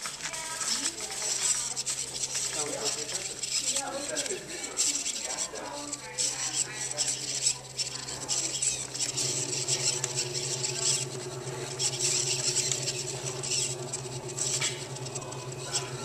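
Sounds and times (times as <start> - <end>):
small motors whirring: 0.0 - 16.0
gritty high chattering: 0.3 - 16.0
low buzz: 6.2 - 16.0.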